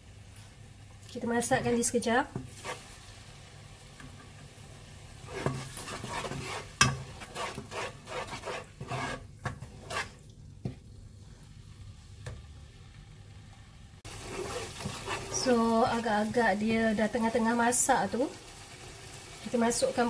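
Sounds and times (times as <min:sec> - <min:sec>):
paste sizzling in oil: 0:01.5 - 0:10.3, 0:14.0 - 0:20.0
spatula scraping pot: 0:02.4 - 0:02.9, 0:05.2 - 0:10.8, 0:14.1 - 0:15.6.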